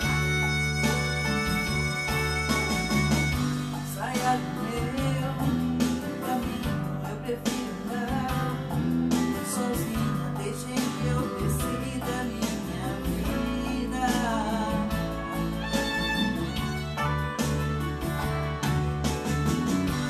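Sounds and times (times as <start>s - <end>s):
guitar: 0.0s - 20.0s
steady bass line: 0.0s - 20.0s
woman singing: 4.0s - 5.5s, 9.5s - 15.1s.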